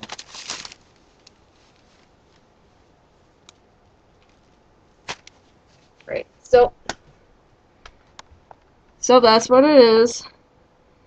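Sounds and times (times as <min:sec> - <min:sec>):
wood shavings rustling: 0:00.0 - 0:02.4.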